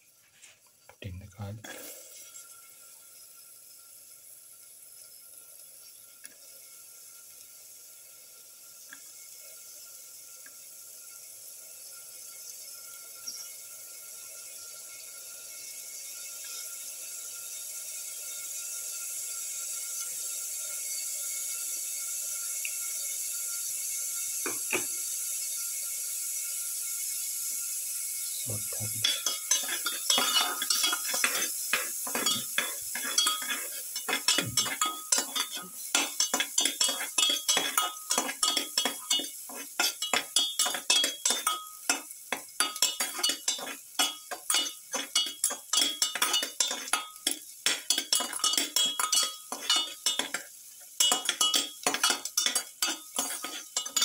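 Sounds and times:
garlic sizzling in oil: 0.0 - 54.0
metal spatula scraping pan: 29.0 - 54.0.

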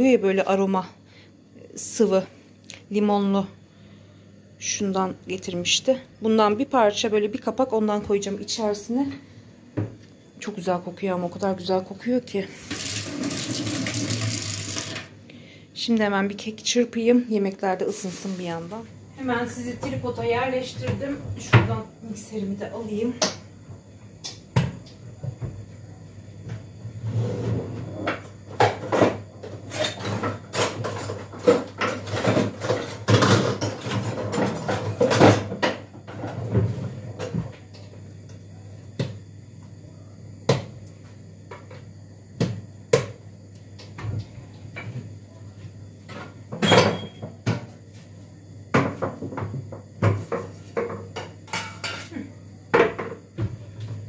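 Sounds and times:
kitchen things clattering on counter: 48.8 - 52.2.

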